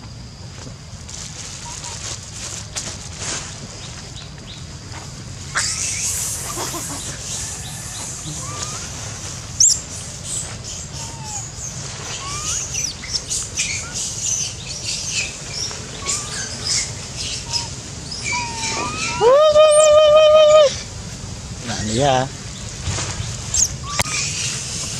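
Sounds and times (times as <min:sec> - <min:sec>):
short chirps and squeaky calls: 0:05.5 - 0:08.9, 0:09.6 - 0:19.2, 0:23.5 - 0:24.7.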